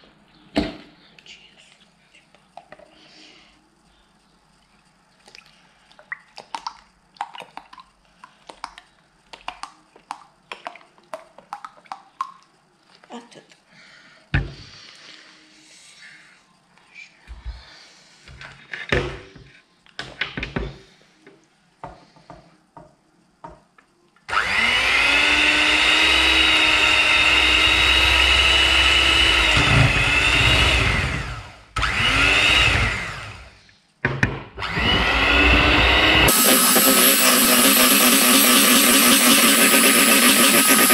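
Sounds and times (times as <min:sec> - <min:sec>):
electric mixer whipping cream: 0:24.3 - 0:33.5, 0:34.6 - 0:40.9.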